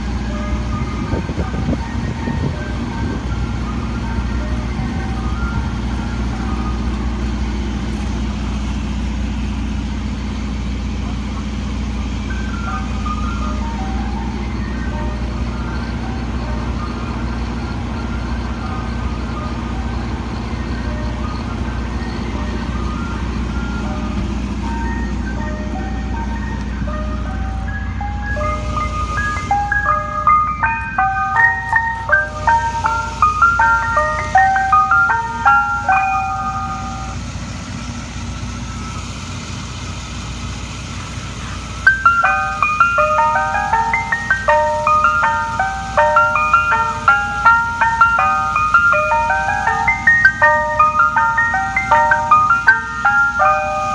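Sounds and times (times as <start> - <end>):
truck engine idling: 0.0 - 53.9
electronic chime jingle: 27.0 - 37.2, 41.9 - 53.9.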